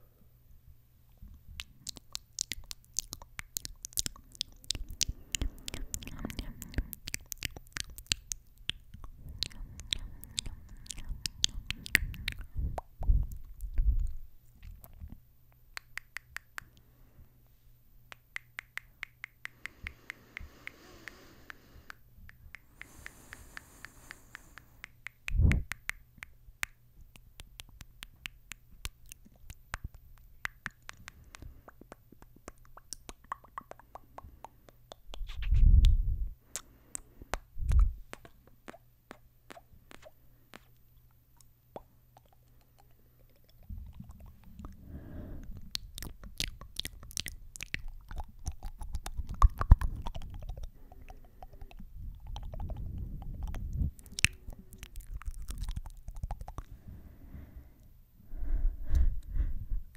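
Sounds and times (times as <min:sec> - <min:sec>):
wet lip smacks and kisses: 0:01.3 - 0:16.8, 0:18.1 - 0:44.8, 0:45.4 - 0:56.7
lips thumping against microphone: 0:45.5 - 0:56.7.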